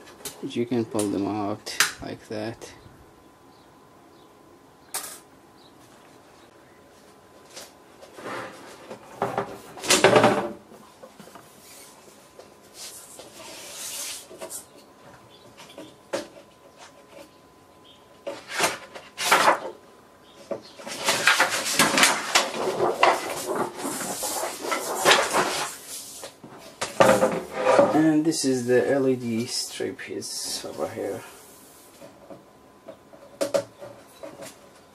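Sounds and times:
plastic and metal knocks and scraping: 8.1 - 11.4, 20.4 - 25.8, 26.4 - 28.1, 32.0 - 34.6.

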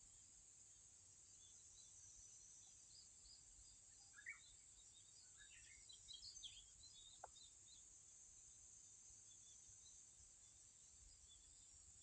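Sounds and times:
bird chirps: 3.9 - 7.8.

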